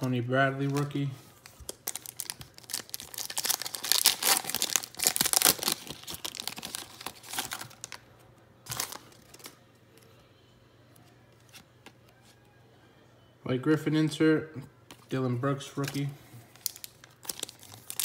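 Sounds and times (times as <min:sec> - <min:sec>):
foil wrapper crinkling and tearing: 0:00.0 - 0:08.0, 0:16.5 - 0:18.0.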